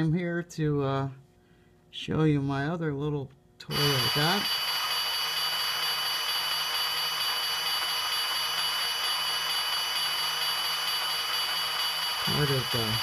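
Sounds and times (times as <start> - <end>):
high whining tones: 3.7 - 13.0
steady hiss: 3.7 - 13.0.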